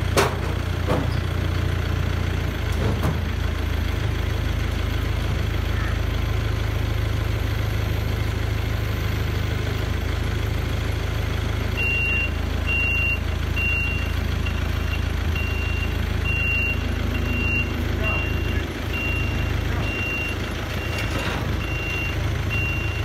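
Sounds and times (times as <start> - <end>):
diesel engine running: 0.0 - 23.0
high warning beeps: 11.8 - 23.0.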